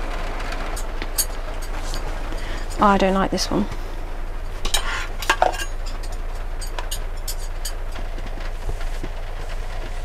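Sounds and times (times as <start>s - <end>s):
heavy rain drumming on roof: 0.0s - 10.0s.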